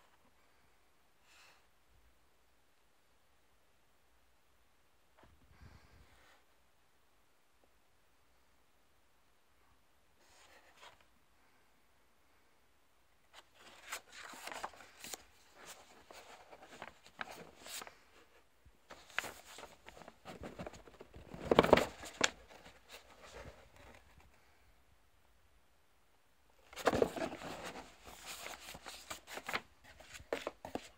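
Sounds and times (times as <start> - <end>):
paper and cardboard rustling: 13.3 - 24.4, 26.6 - 30.9.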